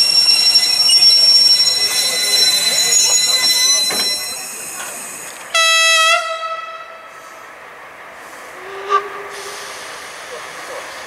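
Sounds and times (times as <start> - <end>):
departing train noise: 0.0 - 11.0
train horn blast: 5.5 - 7.3, 8.6 - 9.7.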